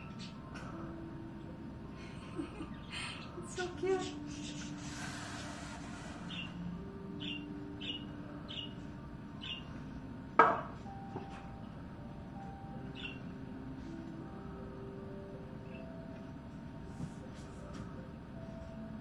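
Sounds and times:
budgerigars chirping: 6.3s - 6.6s, 7.2s - 8.7s, 9.4s - 9.7s, 12.9s - 13.2s.

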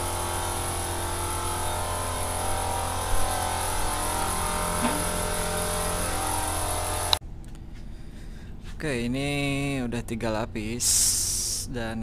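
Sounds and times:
air compressor motor humming: 0.0s - 7.2s.

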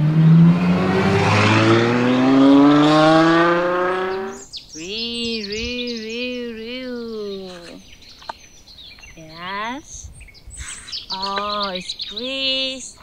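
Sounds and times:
car engine accelerating hard: 0.0s - 4.5s
high warbling chirps: 2.0s - 8.4s.

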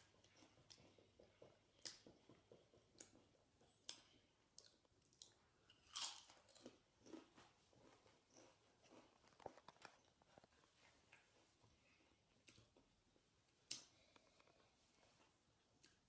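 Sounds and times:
crunching chips: 5.8s - 7.4s.

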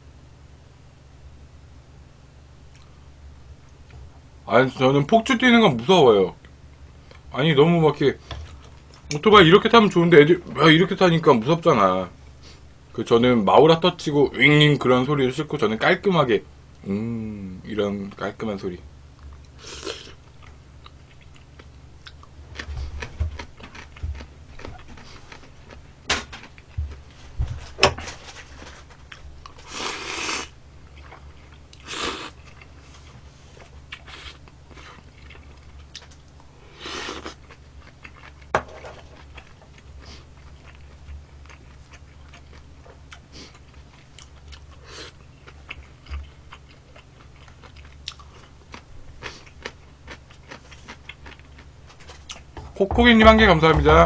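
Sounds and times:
wet chewing: 19.3s - 25.8s, 29.0s - 38.5s, 39.2s - 53.9s
slurping noodles: 29.6s - 30.5s.

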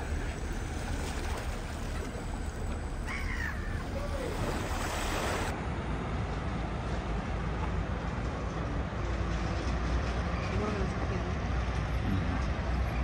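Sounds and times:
water lapping: 0.0s - 5.5s.

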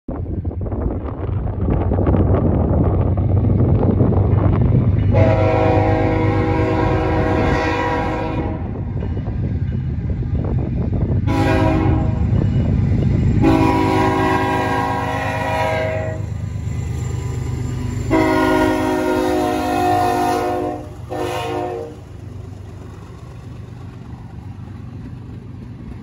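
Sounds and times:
low rumble: 0.1s - 26.0s
train air horn blasts: 5.1s - 8.8s, 11.2s - 12.3s, 13.4s - 16.3s, 18.1s - 22.0s.

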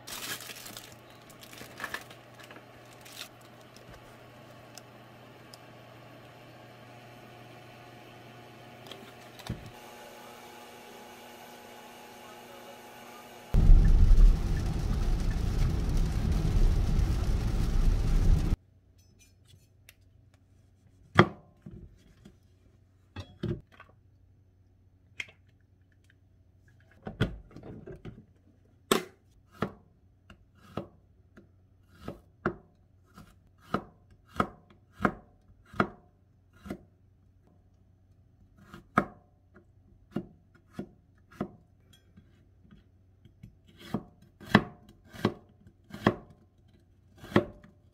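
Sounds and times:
road and rain noise in car: 13.5s - 18.6s
knife chopping on plastic board: 32.0s - 36.0s, 43.8s - 46.4s, 47.2s - 47.7s.

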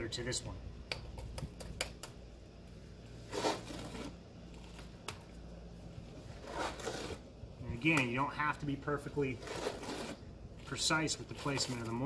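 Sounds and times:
trowel scraping wet mortar: 6.3s - 7.2s, 9.3s - 10.3s.

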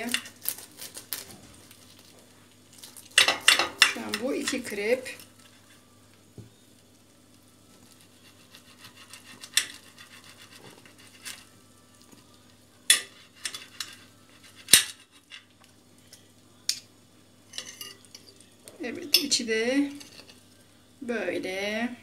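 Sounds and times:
faint steady hum: 0.0s - 22.0s
cutlery scraping a plate: 8.0s - 11.5s, 12.9s - 15.5s, 17.5s - 18.4s, 19.9s - 20.4s.

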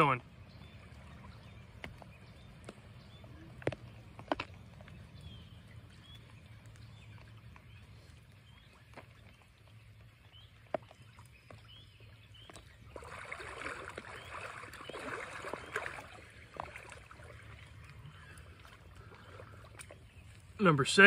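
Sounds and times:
water splashing around wading legs: 0.6s - 20.6s.

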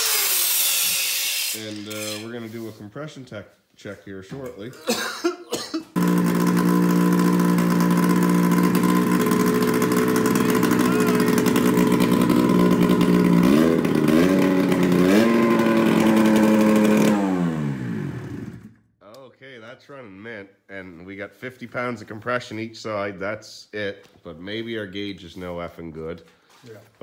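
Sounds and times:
snowmobile engine running: 6.0s - 18.5s.

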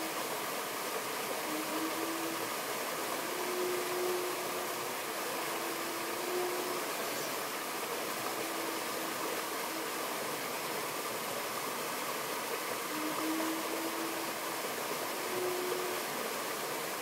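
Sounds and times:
stream rushing over rocks: 0.0s - 17.0s
faint held note: 3.2s - 4.8s.

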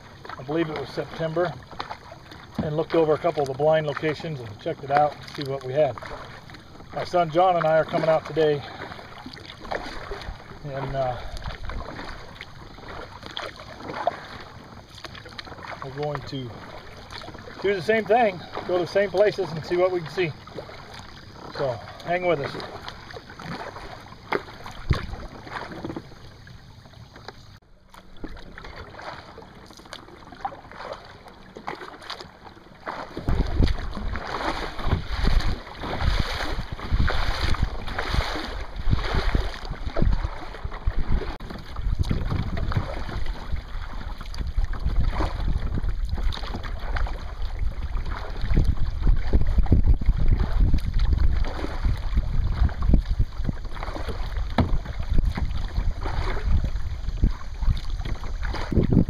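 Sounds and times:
paddle strokes splashing: 0.0s - 59.0s
water slapping kayak hull: 0.0s - 59.0s
wind buffeting microphone: 24.7s - 26.0s, 33.2s - 59.0s.

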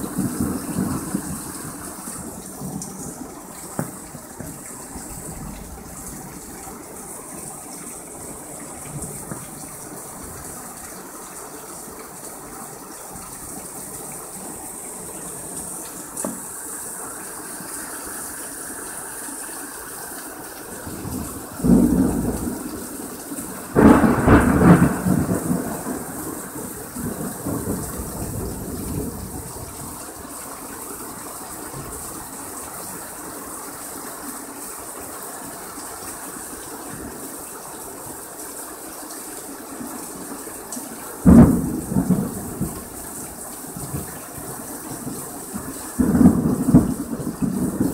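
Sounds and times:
heavy rain falling: 0.0s - 47.9s
thunder clap and rumble: 20.9s - 23.0s, 23.6s - 30.0s, 41.2s - 43.0s, 43.8s - 47.9s.

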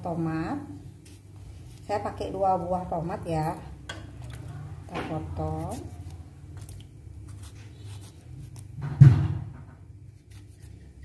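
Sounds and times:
loud dull thump: 8.8s - 9.6s.

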